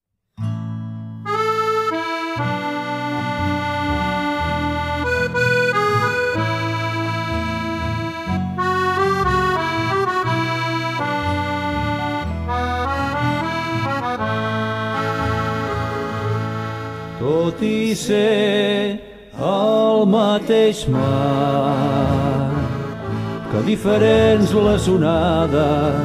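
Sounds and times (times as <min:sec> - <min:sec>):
accordion melody: 0:01.2 - 0:26.0.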